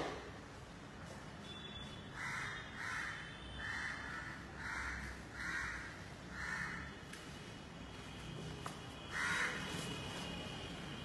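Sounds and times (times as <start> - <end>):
crow cawing: 2.2 - 7.0, 9.1 - 9.6.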